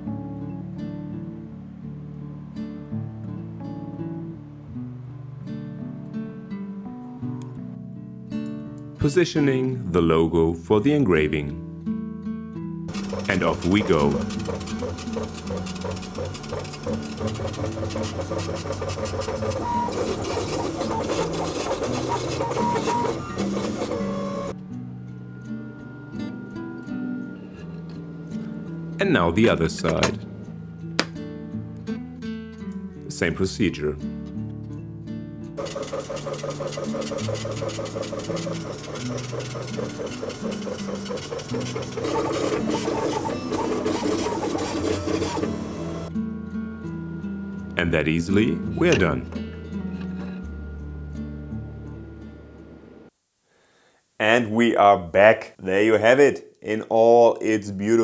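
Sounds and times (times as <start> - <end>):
laser engraver motors whirring: 12.9 - 24.6, 35.6 - 46.1.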